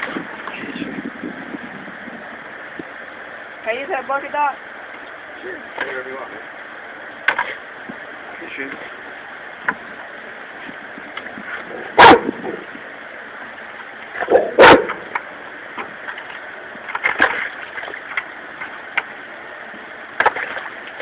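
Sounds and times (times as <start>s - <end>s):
dog barking: 12.0s - 12.4s, 14.3s - 15.0s.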